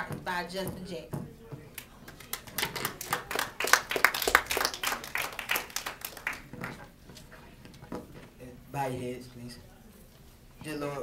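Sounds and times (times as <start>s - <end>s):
small audience clapping: 1.7s - 7.0s.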